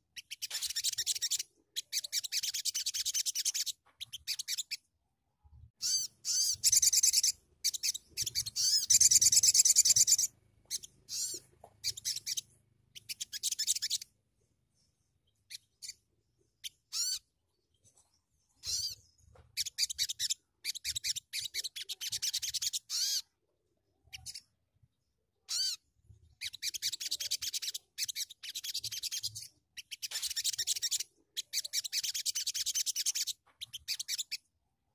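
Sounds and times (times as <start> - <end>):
bird twittering trills: 0.0 - 4.8, 5.8 - 14.2, 14.8 - 23.3.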